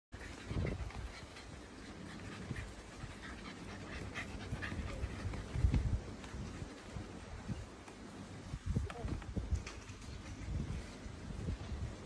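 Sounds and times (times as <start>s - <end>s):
dog panting: 0.2s - 7.5s.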